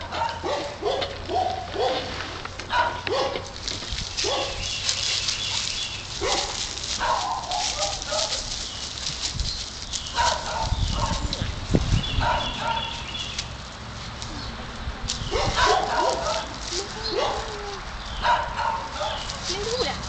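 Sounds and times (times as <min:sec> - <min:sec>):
dog yipping: 0:00.0 - 0:02.1, 0:02.7 - 0:03.4, 0:04.2 - 0:04.6, 0:06.2 - 0:08.4, 0:12.2 - 0:13.0, 0:15.3 - 0:19.9.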